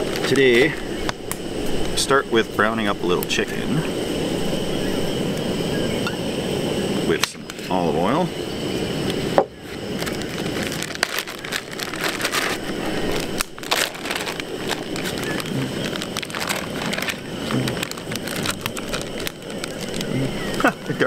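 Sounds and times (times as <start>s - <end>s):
oil crackling and sizzling: 0.0s - 21.0s
plastic bag crinkling: 9.9s - 20.6s.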